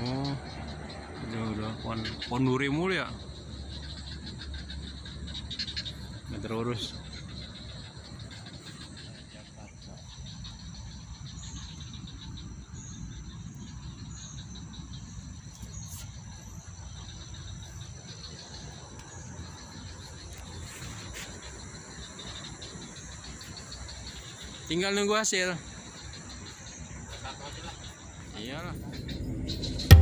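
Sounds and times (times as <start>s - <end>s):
insects chirring: 0.0s - 30.0s
low rumble: 28.8s - 30.0s.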